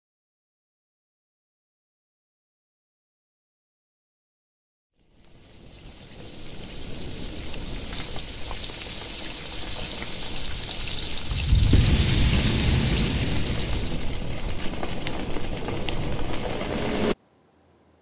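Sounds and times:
hissing noise with crackles: 5.0 - 17.2
deep rumble: 11.2 - 17.2.

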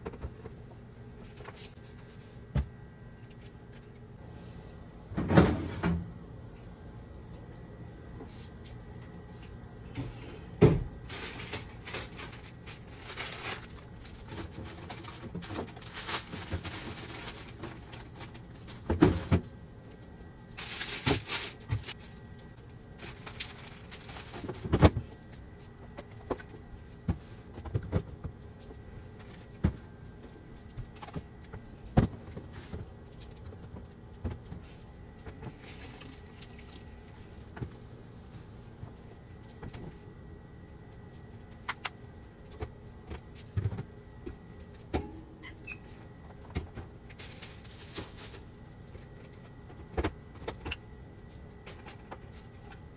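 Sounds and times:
rustling and scraping: 11.0 - 20.0, 20.6 - 40.0, 45.9 - 50.6.

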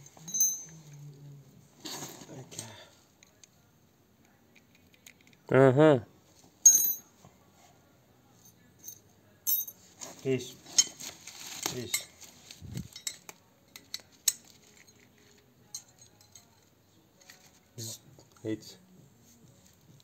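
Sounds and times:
metal parts clinking: 6.7 - 7.1, 10.7 - 17.6.

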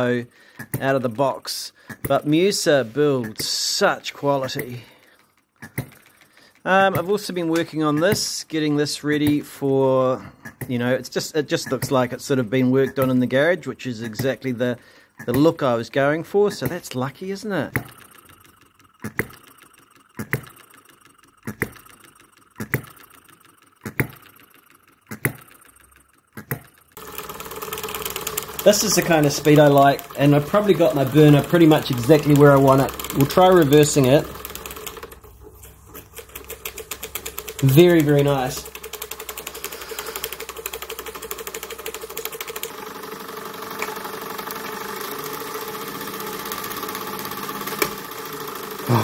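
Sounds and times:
miniature steam engine running: 0.0 - 35.3, 36.1 - 49.0
model engine running fast: 27.0 - 35.1, 37.1 - 49.0.

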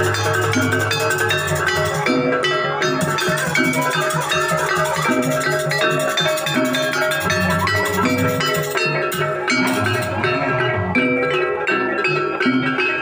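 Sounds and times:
hand drums: 0.0 - 13.0
metallophones ringing: 0.0 - 13.0.

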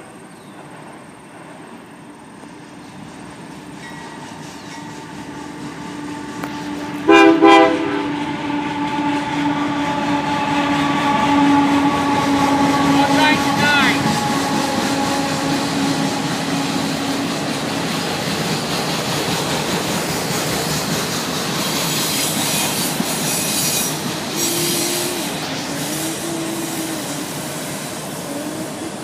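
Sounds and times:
train wheels rolling on rail: 0.0 - 29.0
thin wavering squeals: 2.8 - 7.0, 21.6 - 29.0.

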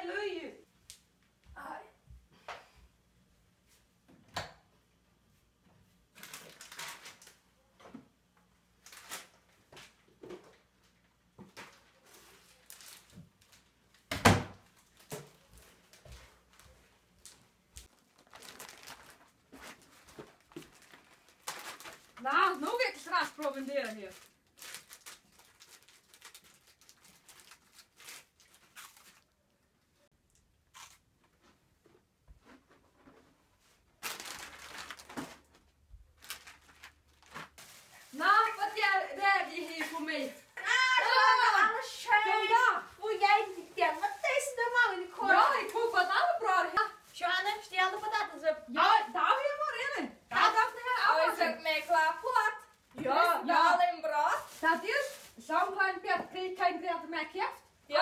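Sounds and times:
plastic wrapper crinkling and tearing: 6.1 - 7.4, 8.8 - 10.0, 11.6 - 15.2, 15.9 - 29.6, 30.7 - 31.0, 34.0 - 48.4, 54.2 - 55.8
crunchy bite of food: 30.7 - 31.0.

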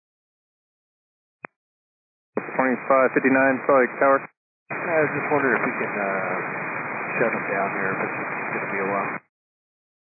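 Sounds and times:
radio transmission click: 5.5 - 5.8.

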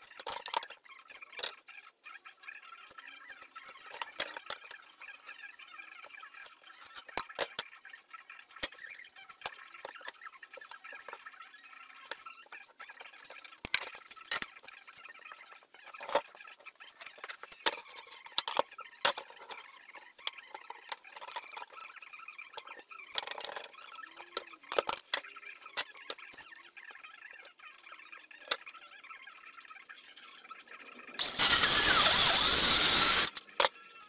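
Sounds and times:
tools clicking and knocking on wood: 0.0 - 0.8, 3.3 - 4.8, 6.8 - 7.7, 17.0 - 19.6, 22.5 - 26.4.

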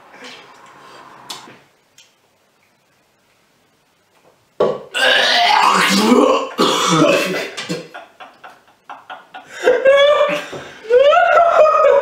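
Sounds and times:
young man gagging and retching: 4.8 - 8.0.

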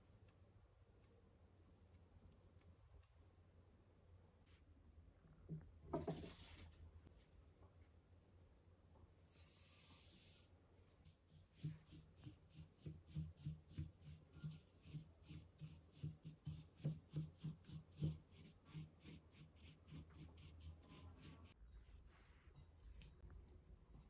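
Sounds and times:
brief hiss: 9.3 - 10.5.

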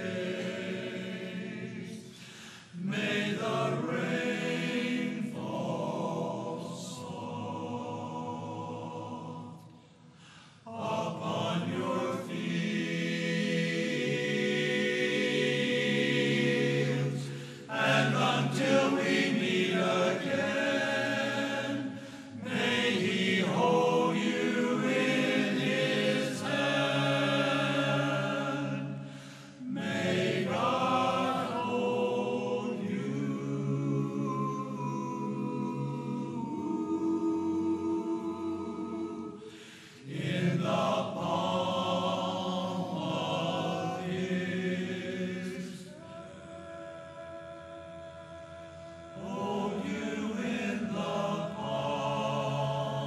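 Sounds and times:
men's chorus singing a cappella: 0.0 - 53.0.

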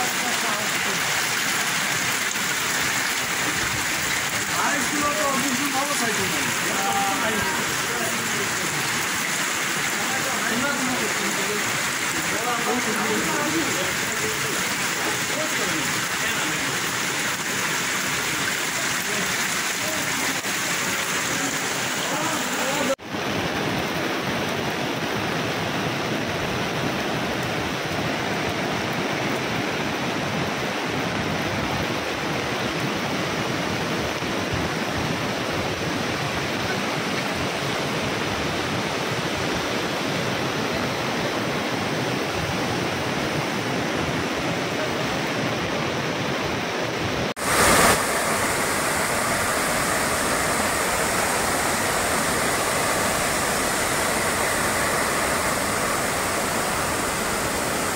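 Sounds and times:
rushing floodwater: 0.0 - 57.9.

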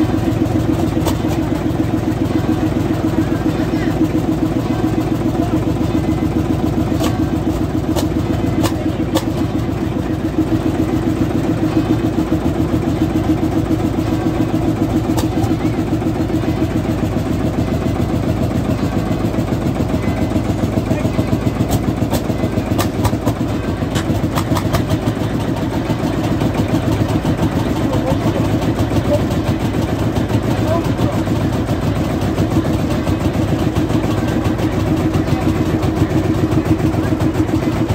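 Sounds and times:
tractor engine chugging: 0.0 - 37.9
sharp clicks and knocks: 21.7 - 24.9.

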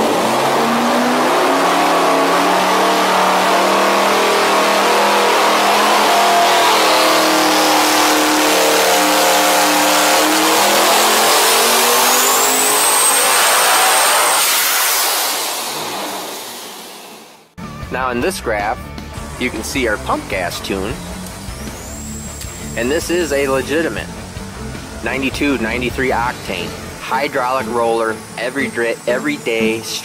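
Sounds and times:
engine revving on dyno: 0.0 - 17.6, 19.0 - 30.0
high turbo whine: 0.0 - 30.0.

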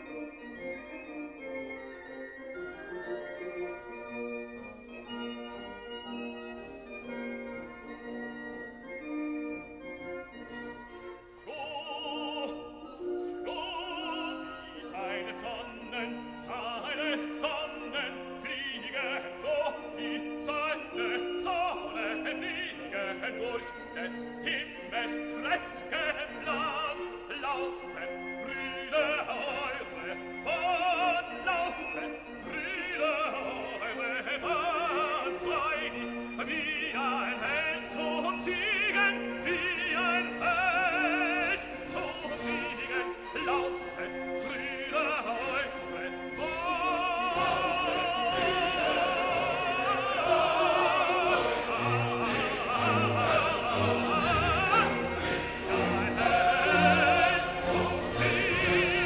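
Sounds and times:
orchestral accompaniment: 0.0 - 59.0
operatic singing with vibrato: 9.5 - 59.0.

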